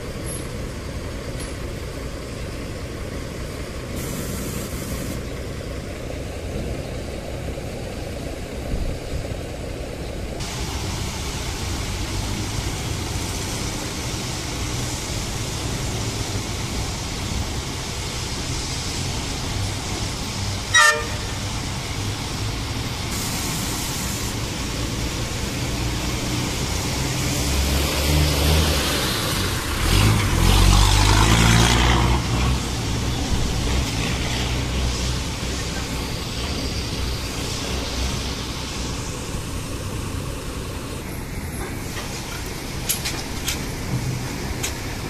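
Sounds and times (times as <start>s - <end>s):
truck engine running: 0.0s - 45.0s
truck horn toot: 20.7s - 21.4s.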